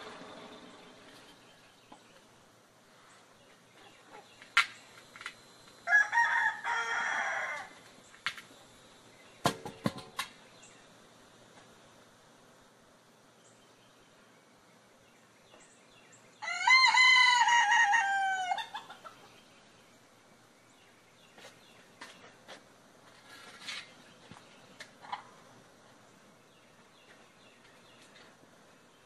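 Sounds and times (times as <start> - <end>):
rooster crowing: 5.8 - 7.8, 16.4 - 18.9.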